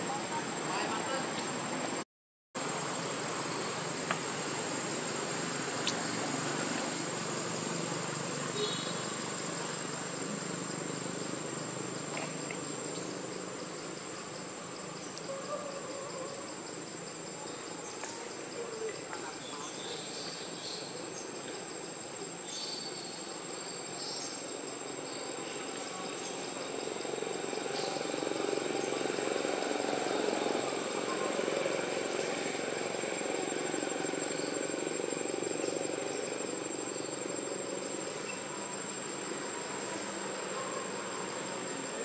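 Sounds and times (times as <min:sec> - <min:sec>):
insects chirring: 0:00.0 - 0:02.0, 0:02.6 - 0:42.0
broad rushing background noise: 0:02.6 - 0:42.0.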